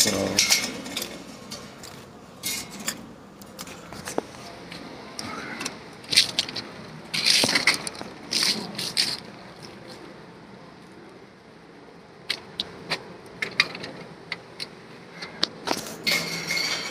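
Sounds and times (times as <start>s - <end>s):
scraping rustling and clicking: 0.4s - 10.0s.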